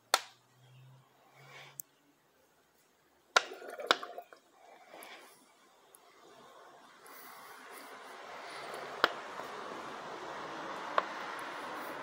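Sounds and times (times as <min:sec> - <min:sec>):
sharp plastic clicks: 0:00.1 - 0:00.4.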